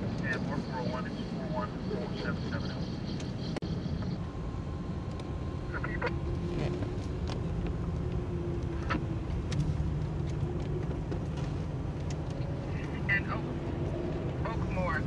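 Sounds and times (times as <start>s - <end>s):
car road and engine noise: 0.0s - 15.0s.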